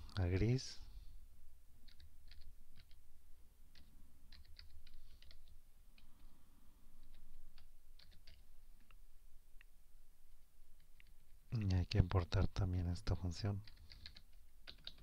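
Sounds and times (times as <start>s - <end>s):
keyboard typing: 1.8s - 3.0s, 3.7s - 6.1s, 7.0s - 8.9s, 13.6s - 15.0s.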